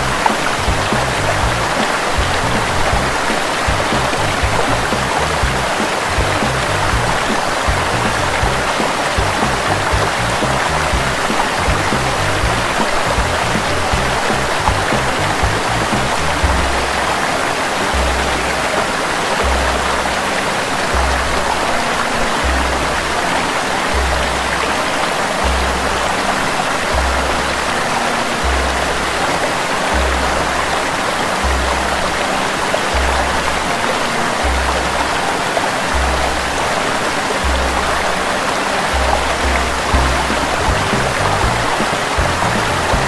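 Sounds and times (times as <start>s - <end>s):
pulsing deep bass note: 0.0s - 17.3s, 17.9s - 18.8s, 19.4s - 20.2s, 20.9s - 21.6s, 22.4s - 23.2s, 23.9s - 24.8s, 25.4s - 26.2s, 26.9s - 27.7s, 28.4s - 32.2s, 32.9s - 33.7s, 34.4s - 35.2s, 35.9s - 36.8s, 37.4s - 38.2s, 38.9s - 43.0s
waterfall rushing: 0.0s - 43.0s.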